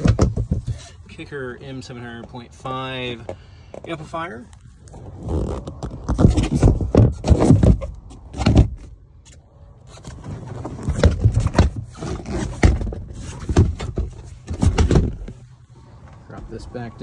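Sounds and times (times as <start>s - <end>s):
microphone handling bumps: 0.0s - 0.9s, 4.9s - 8.9s.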